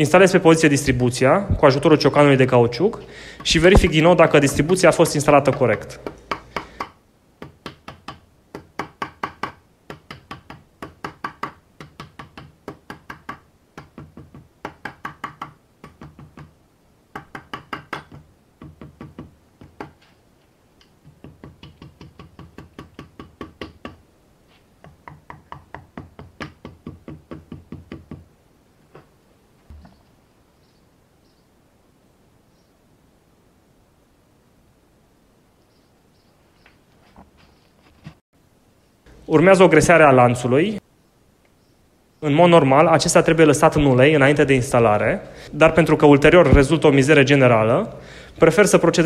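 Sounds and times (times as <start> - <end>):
rubber mallet tapping metal: 3.3 - 16.5, 17.2 - 20.0.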